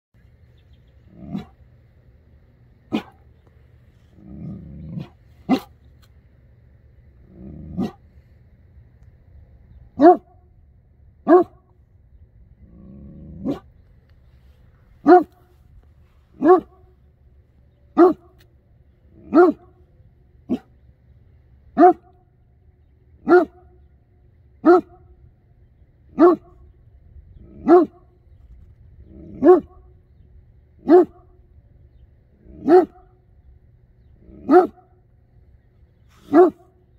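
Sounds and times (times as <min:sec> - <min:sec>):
dog low rumbling growl: 0:01.0 - 0:01.7, 0:03.9 - 0:05.6, 0:07.1 - 0:08.3, 0:12.4 - 0:14.1, 0:26.4 - 0:30.2
dog barking deeply: 0:01.1 - 0:01.7, 0:02.8 - 0:03.3, 0:04.1 - 0:05.8, 0:07.2 - 0:08.1, 0:09.9 - 0:10.5, 0:11.2 - 0:11.7, 0:12.6 - 0:13.8, 0:15.0 - 0:15.5, 0:16.3 - 0:17.0, 0:17.9 - 0:18.4, 0:19.1 - 0:19.8, 0:20.4 - 0:20.8, 0:21.7 - 0:22.3, 0:23.2 - 0:23.8, 0:24.6 - 0:25.2, 0:26.1 - 0:28.2, 0:29.0 - 0:30.0, 0:30.8 - 0:31.4, 0:32.4 - 0:33.2, 0:34.2 - 0:35.0, 0:36.2 - 0:36.9.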